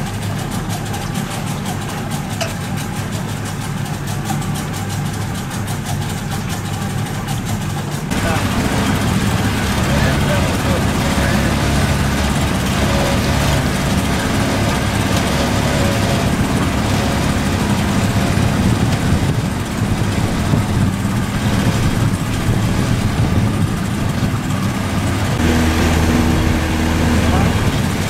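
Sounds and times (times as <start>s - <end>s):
boat engine running: 0.0s - 28.0s
steady hum: 8.1s - 28.0s.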